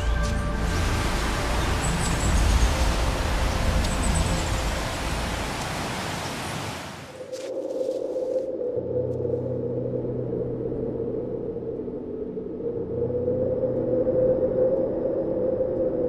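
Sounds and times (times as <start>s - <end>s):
hiss over low rumble: 0.1s - 7.4s.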